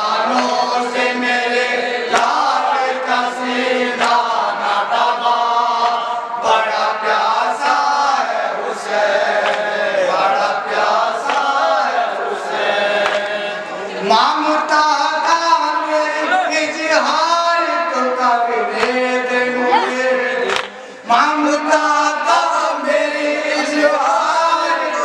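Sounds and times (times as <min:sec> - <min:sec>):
group of men's voices: 0:00.0 - 0:25.0
hands slapping chests: 0:02.1 - 0:02.4, 0:04.0 - 0:04.3, 0:05.8 - 0:06.1, 0:09.3 - 0:09.8, 0:11.2 - 0:11.7, 0:13.0 - 0:13.4, 0:20.5 - 0:20.8
man chanting a lament: 0:13.4 - 0:25.0.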